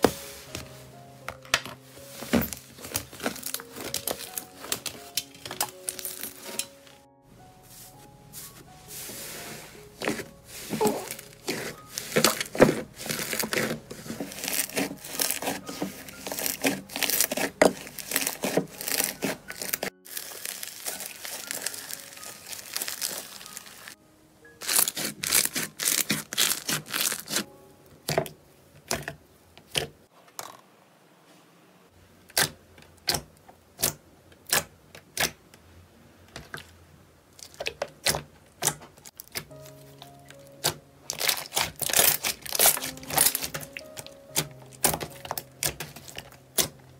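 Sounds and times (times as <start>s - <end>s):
slime crackling and popping: 2.4s - 6.7s, 10.0s - 24.0s, 24.6s - 28.2s, 37.4s - 46.9s.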